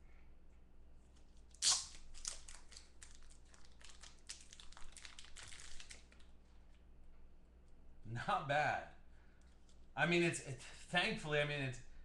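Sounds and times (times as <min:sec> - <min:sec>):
plastic wrapping tearing: 0:01.4 - 0:06.3
plastic crinkling: 0:01.7 - 0:06.3.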